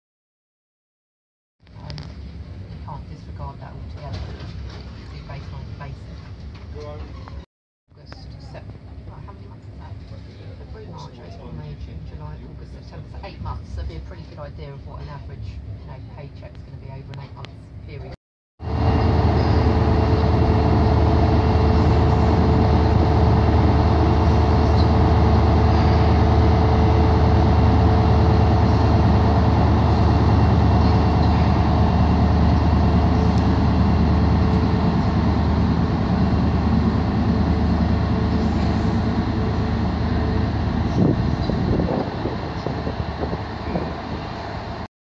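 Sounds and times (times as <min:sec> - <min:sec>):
train diesel engine droning: 0:18.6 - 0:44.9.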